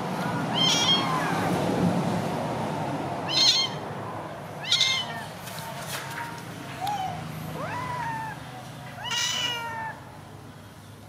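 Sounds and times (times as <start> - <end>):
kitten meowing: 0.5 - 1.5, 3.2 - 3.8, 4.6 - 5.2, 6.8 - 8.4, 9.0 - 10.0.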